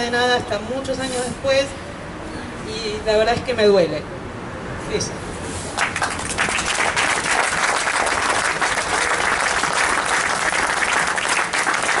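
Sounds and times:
crowd applauding: 5.8 - 12.0.

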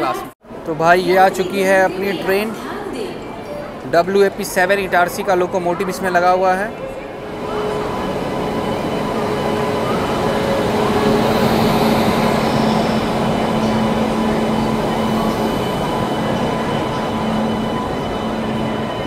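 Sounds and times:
locomotive hum: 1.3 - 19.0
train wheels rumbling on rail: 6.9 - 19.0.

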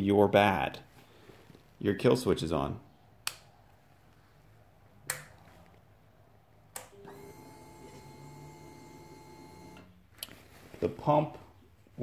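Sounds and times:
switch clicks: 3.2 - 3.5, 5.1 - 5.4, 6.7 - 7.0.

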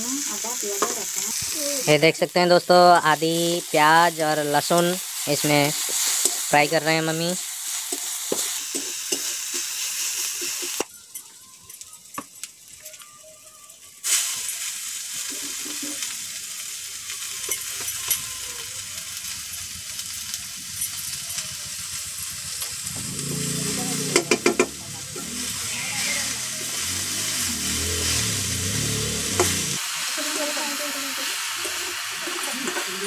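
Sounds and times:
oil sizzling in a pan: 0.0 - 33.0
spatula stirring and scraping: 5.8 - 6.6
spatula knocking on pan: 24.1 - 24.7.

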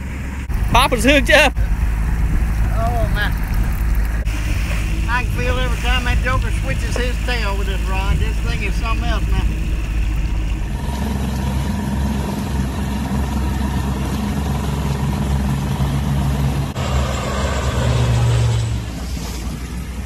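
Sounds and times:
propeller planes droning overhead: 0.0 - 20.0.

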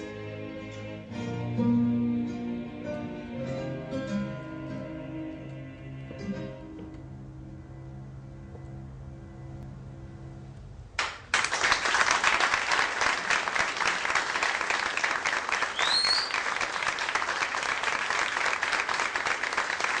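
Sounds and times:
audience applause: 11.0 - 20.0.

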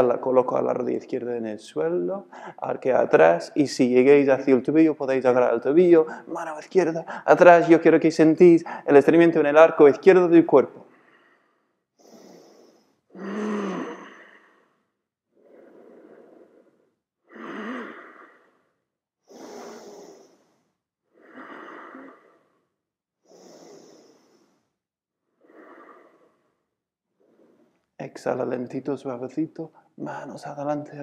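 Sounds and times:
person breathing deeply: 2.3 - 2.6, 6.0 - 6.4, 7.0 - 7.3, 8.6 - 8.9, 10.8 - 24.8, 25.4 - 27.9.

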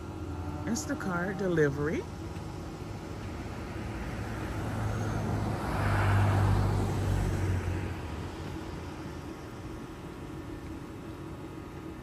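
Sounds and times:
low engine hum: 0.0 - 12.0
car driving by: 3.4 - 8.8.

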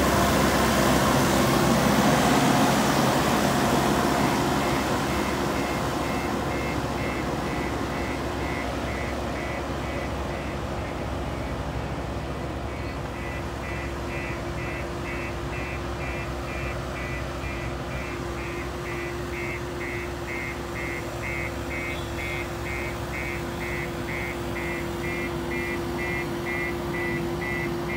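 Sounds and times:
diesel engines running: 0.0 - 27.9
reversing alarm beeping: 4.1 - 27.9.

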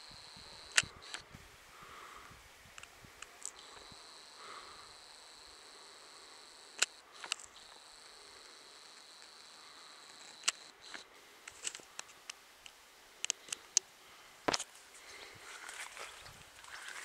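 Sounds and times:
sharp clicks: 0.1 - 1.3, 6.6 - 13.9
high-pitched insect trill: 3.3 - 11.0.

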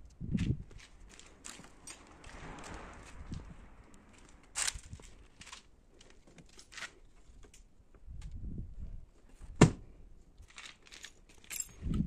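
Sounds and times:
handling clicks and scrapes: 0.3 - 7.7, 10.4 - 12.0.

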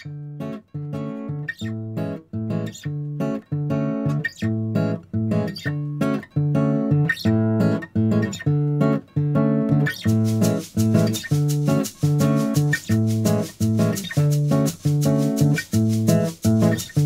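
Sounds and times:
bossa nova acoustic guitar: 0.0 - 17.0.

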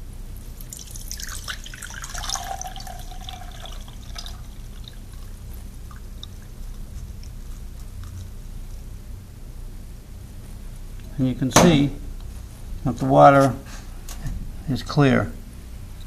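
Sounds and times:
water dripping: 0.4 - 7.4
water splashing and trickling: 0.5 - 7.4.

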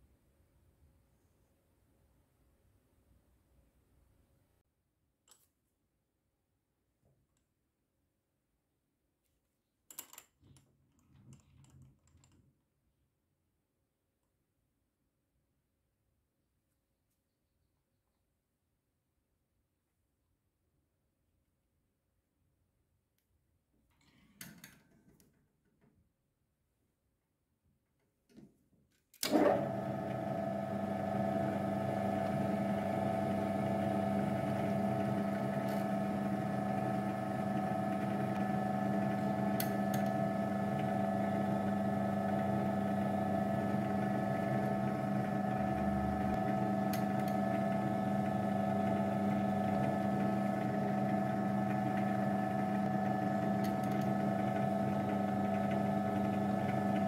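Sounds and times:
milling machine spindle motor humming: 29.3 - 57.0.

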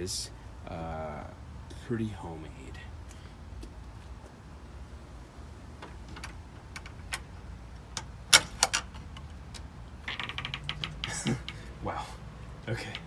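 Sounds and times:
low steady rumble: 0.0 - 13.0
light clicks and knocks: 5.8 - 11.8.

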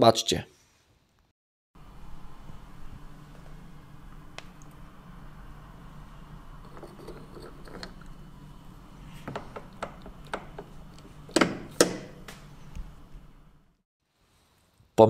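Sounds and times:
small clicks and scrapes: 6.6 - 8.2.

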